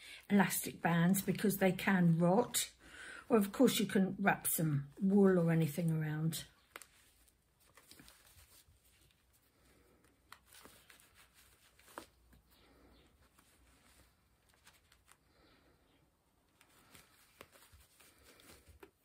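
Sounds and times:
faint rustling: 6.6 - 19.0.

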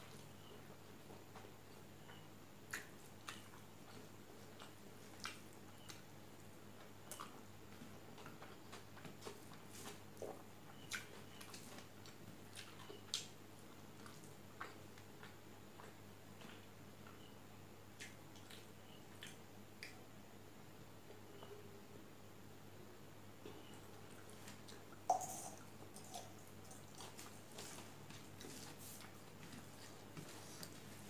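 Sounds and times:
faint low hum: 0.0 - 31.0
chewing clicks and smacks: 2.7 - 6.1, 6.8 - 13.4, 18.0 - 20.0.

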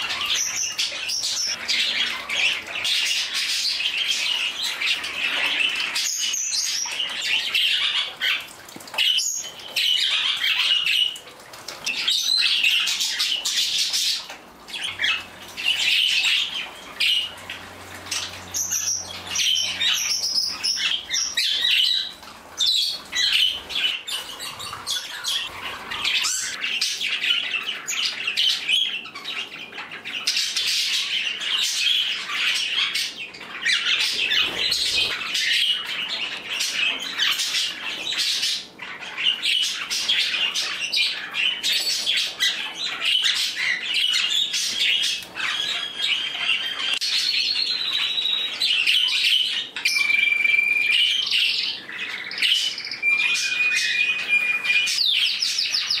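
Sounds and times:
birds chattering and squawking: 0.0 - 56.0.

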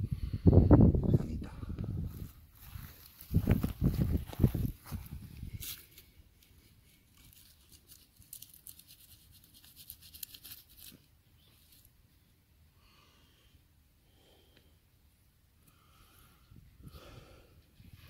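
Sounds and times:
crackling in dry grass: 2.1 - 12.0.

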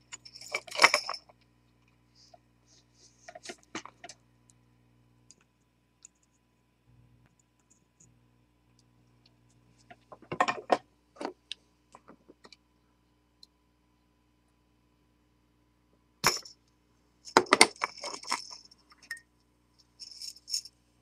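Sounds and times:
clicking and rattling: 0.0 - 1.3, 17.3 - 19.2
faint steady hum: 0.0 - 21.0.

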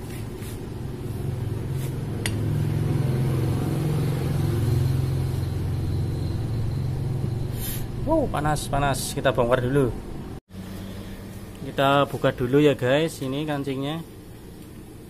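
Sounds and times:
engine droning: 0.0 - 15.0.

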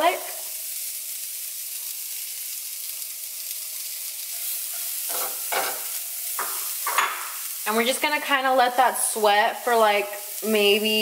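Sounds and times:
shallots sizzling in butter: 0.0 - 11.0
spatula scraping a pan: 4.3 - 7.4.

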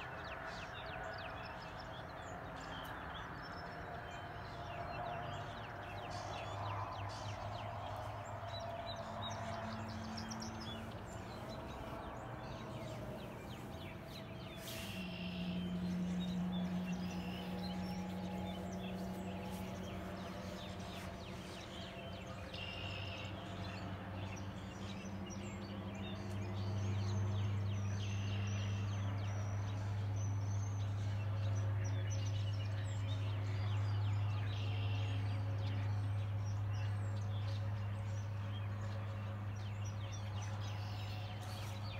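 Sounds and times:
birdsong: 0.0 - 41.9
steady low hum: 4.4 - 28.8.

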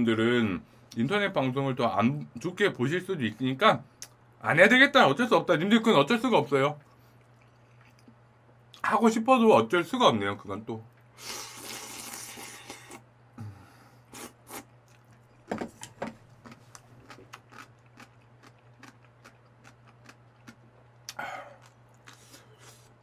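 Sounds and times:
chewing and mouth sounds: 6.8 - 8.8, 16.4 - 22.9
person sipping from a bowl: 11.2 - 14.7.

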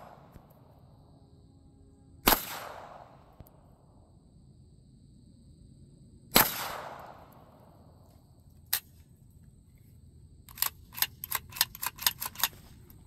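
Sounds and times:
gunshot with echo: 2.2 - 3.2, 6.3 - 7.3.

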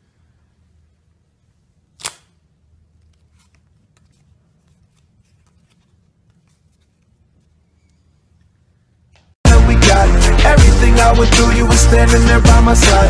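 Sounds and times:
playing cards snapping: 2.0 - 2.4
cards clicking and rustling: 3.0 - 7.4.

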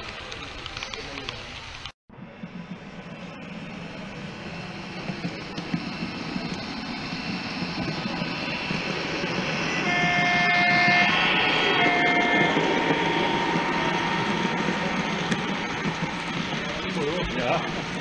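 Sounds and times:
model train running: 0.0 - 18.0
chord-like horn blasts: 9.5 - 16.2.

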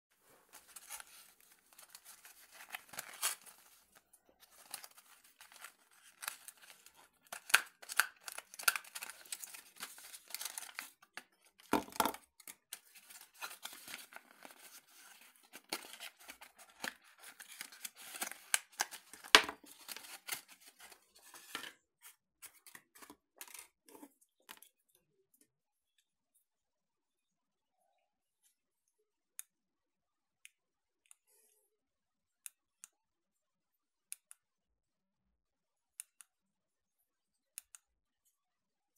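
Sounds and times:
packaging crinkling and rustling: 0.5 - 21.7.

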